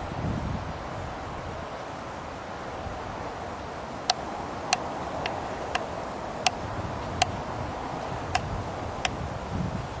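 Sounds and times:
steady hiss: 0:00.0 - 0:10.0.

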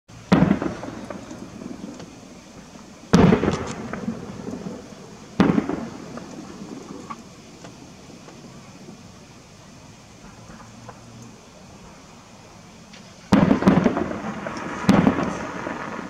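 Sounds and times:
firework shells booming: 0:00.1 - 0:09.0, 0:13.2 - 0:16.0.

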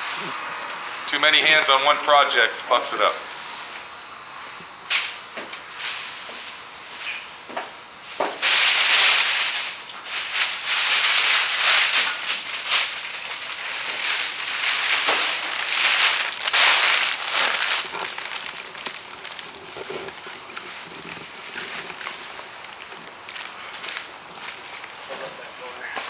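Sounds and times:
plastic sheeting crinkling: 0:08.4 - 0:24.8.

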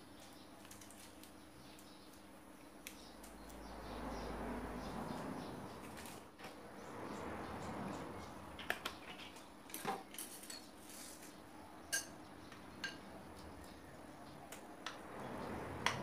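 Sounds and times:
spoon clinking against glass: 0:11.9 - 0:12.2.

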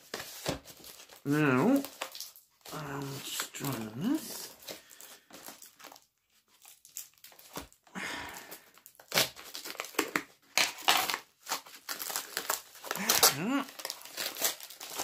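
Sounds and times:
packaging tearing and crinkling: 0:00.0 - 0:15.0.

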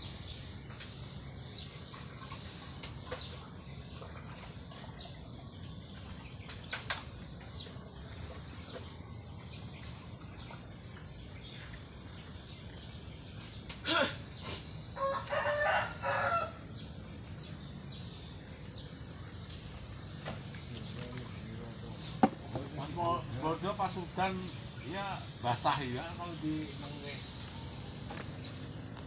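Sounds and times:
crickets chirping: 0:00.0 - 0:29.0
rooster crowing: 0:15.0 - 0:16.7.

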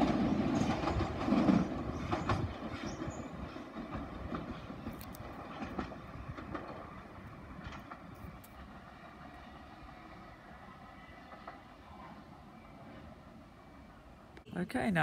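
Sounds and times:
wheels clicking over rails: 0:00.0 - 0:09.6.

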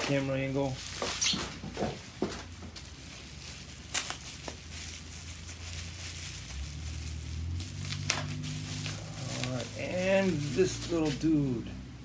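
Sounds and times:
plastic wrapping crinkling: 0:00.0 - 0:11.6.

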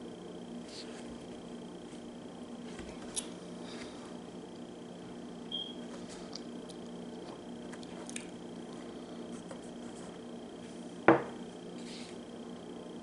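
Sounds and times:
item knocking on tabletop: 0:11.1 - 0:11.4.

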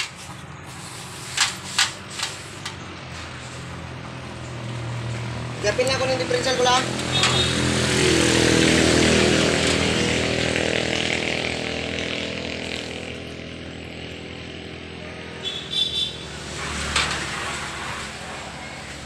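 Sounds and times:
motorcycle engine running: 0:06.8 - 0:16.3.

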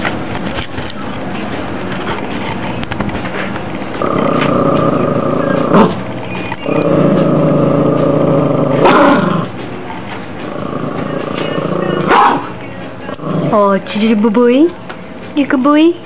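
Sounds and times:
small dog growling: 0:04.0 - 0:09.5, 0:10.4 - 0:12.5, 0:13.1 - 0:13.8
dog snarling: 0:04.0 - 0:09.6, 0:10.4 - 0:12.5, 0:13.1 - 0:13.8.

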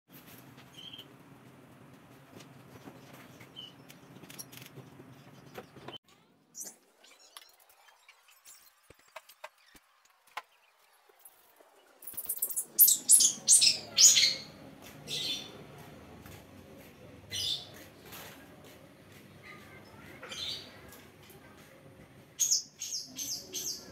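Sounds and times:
shrike calling: 0:12.1 - 0:14.5.

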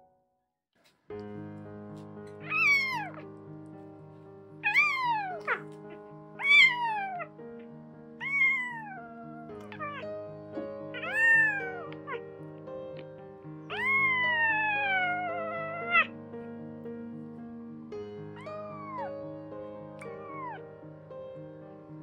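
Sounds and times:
keyboard chords music: 0:01.1 - 0:22.0
kitten meowing: 0:02.4 - 0:03.3, 0:04.6 - 0:07.3, 0:08.2 - 0:10.1, 0:10.9 - 0:12.2, 0:13.7 - 0:16.1, 0:18.4 - 0:19.2, 0:20.0 - 0:20.7.

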